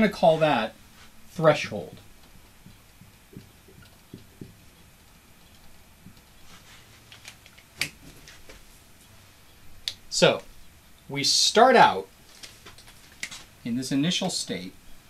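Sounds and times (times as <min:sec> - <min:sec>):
markers clicking and tapping: 0:01.9 - 0:04.6.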